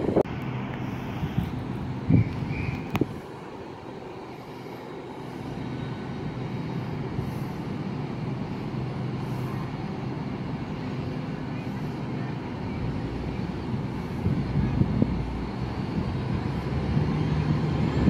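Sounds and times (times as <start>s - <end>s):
train diesel engines humming: 0.0s - 18.0s.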